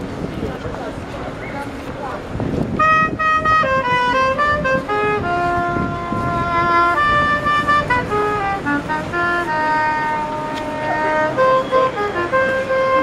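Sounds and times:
woodwind melody: 2.7 - 13.0.

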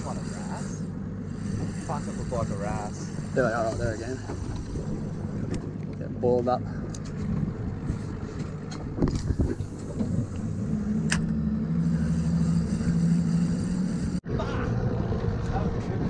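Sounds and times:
boat engine running: 0.0 - 16.0
wind buffeting microphone: 7.1 - 11.0.

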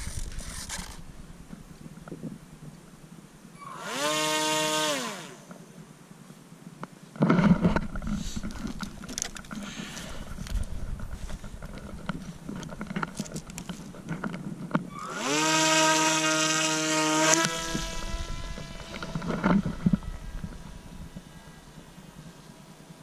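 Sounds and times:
wind on microphone: 0.0 - 2.8, 10.1 - 15.0, 17.4 - 22.4
small electric motor whine: 3.6 - 5.6, 14.9 - 23.0
handling noise: 7.2 - 15.0, 17.3 - 21.9.

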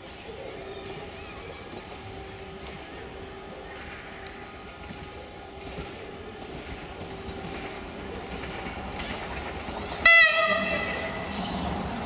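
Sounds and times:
train approaching: 0.0 - 12.0
loud train horn blast: 10.0 - 11.4.

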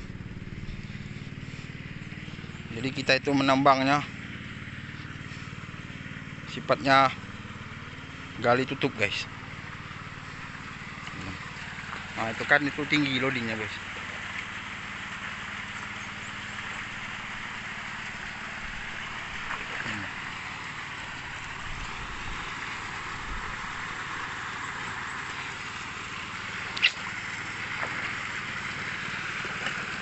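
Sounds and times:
low engine hum: 0.0 - 30.0
slurry rushing out of sluice: 9.5 - 30.0
sharp click: 26.8 - 27.1.

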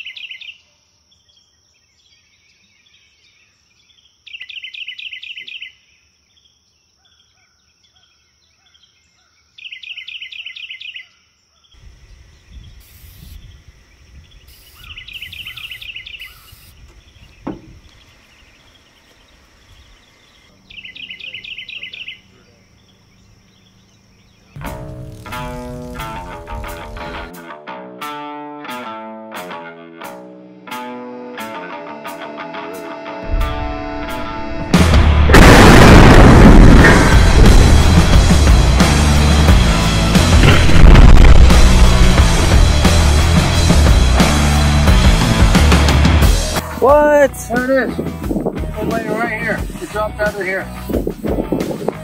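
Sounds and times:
high-pitched insect drone: 11.9 - 13.8, 24.6 - 27.3.

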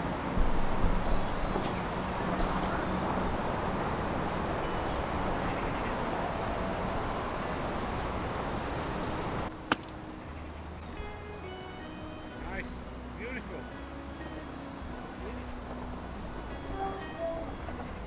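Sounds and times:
small birds chirping: 0.0 - 18.0
golf club striking ball: 9.7 - 10.0.

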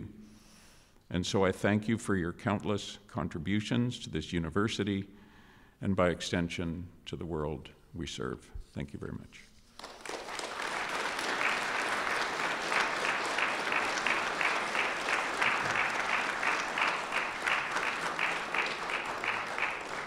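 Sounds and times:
audience applauding: 9.8 - 20.0.

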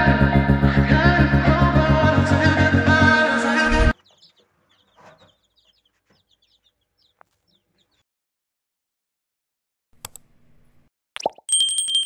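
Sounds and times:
chicks peeping: 3.5 - 8.0.

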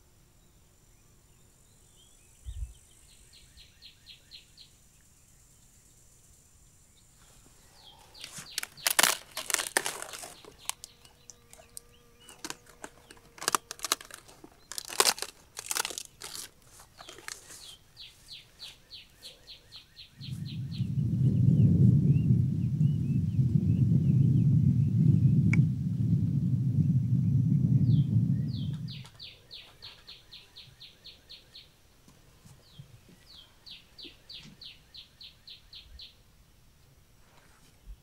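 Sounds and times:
rustling and crunching: 7.2 - 19.4.

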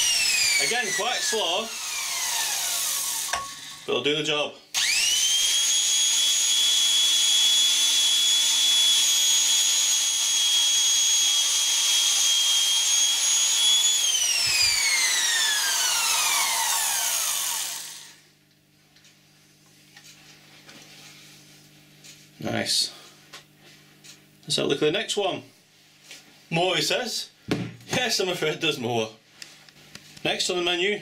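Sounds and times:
electric drill whining: 0.0 - 3.9, 4.7 - 18.2.

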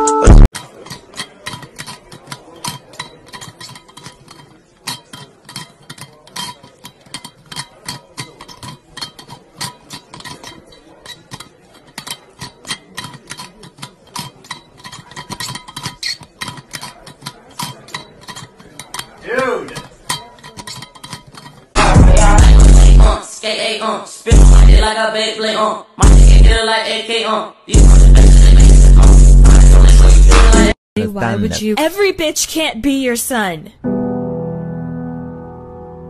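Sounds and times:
metal bottle lid clinking: 0.5 - 21.8.

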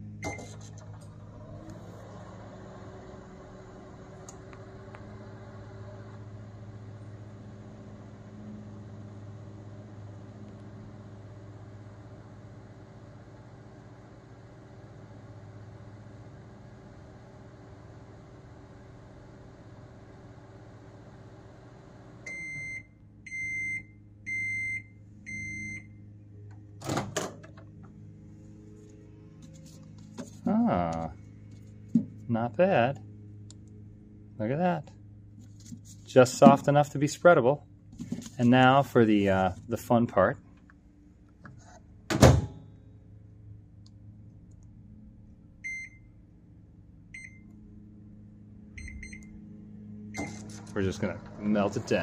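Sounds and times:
microwave oven humming: 0.0 - 52.0
microwave keypad beeps: 22.3 - 25.9, 45.6 - 46.1, 47.2 - 47.5, 48.8 - 49.3
microwave door thunk: 42.1 - 42.6.

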